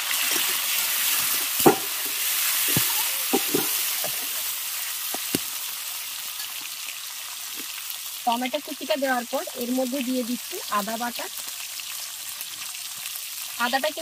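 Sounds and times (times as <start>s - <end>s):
tomato sizzling in hot oil: 0.0s - 14.0s
metal spatula scraping a pan: 0.1s - 4.9s.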